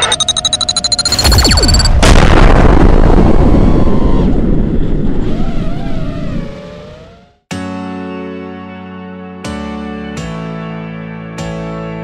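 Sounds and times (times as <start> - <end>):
explosion blast with rumble: 1.1 - 5.7.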